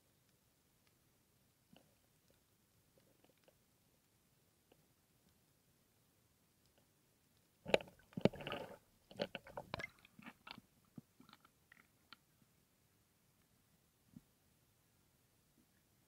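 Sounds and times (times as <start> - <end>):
water drips and ticks: 7.7 - 12.3.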